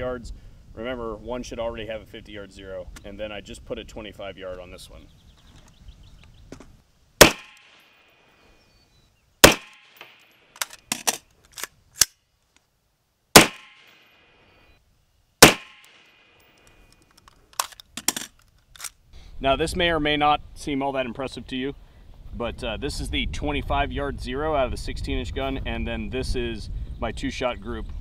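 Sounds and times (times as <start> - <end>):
rifle shots with ringing echo: 7.2 - 8.1, 9.4 - 10.5, 13.3 - 14.3, 15.4 - 16.5.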